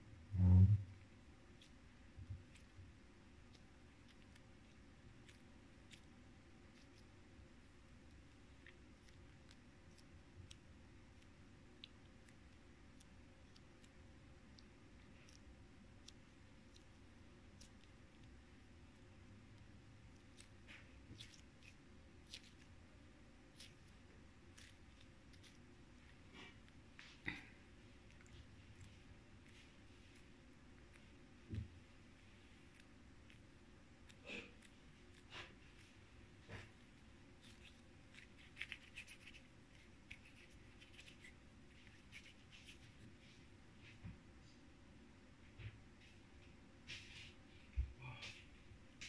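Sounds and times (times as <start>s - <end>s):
slime squelching between hands: 1.5s - 43.1s
slime clicking and crackling: 20.1s - 26.8s, 37.4s - 42.9s.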